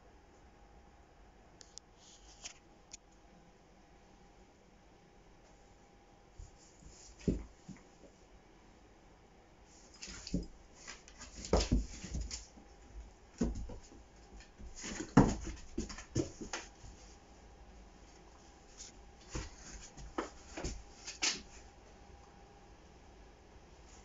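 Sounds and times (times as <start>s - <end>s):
animals scuffling on wooden floor: 9.8s - 17.2s, 18.0s - 21.6s.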